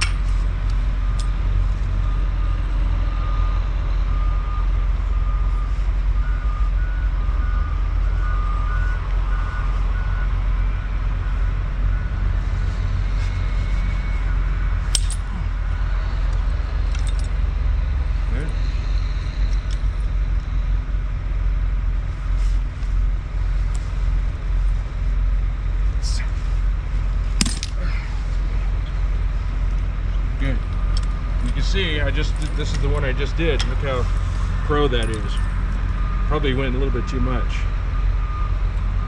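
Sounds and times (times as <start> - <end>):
truck engines idling: 0.0 - 39.0
truck reversing alarm beeping: 0.0 - 39.0
sharp metal click: 14.9 - 15.3.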